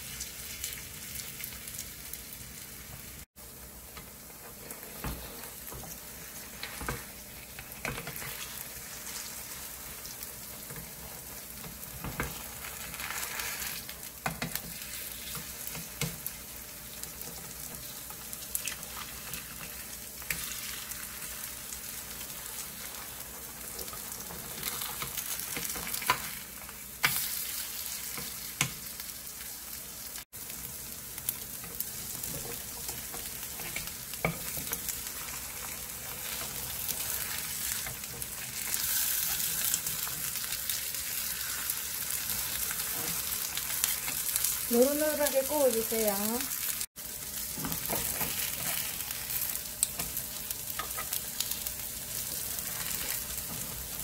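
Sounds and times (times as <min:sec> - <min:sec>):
pancakes sizzling in oil: 0:00.0 - 0:54.0.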